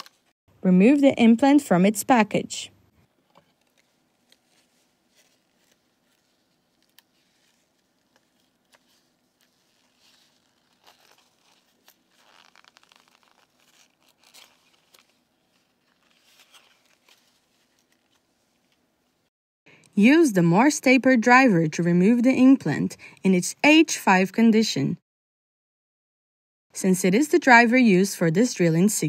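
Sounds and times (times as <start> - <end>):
plastic blister pack crinkling: 0.0 - 0.3, 3.5 - 18.3.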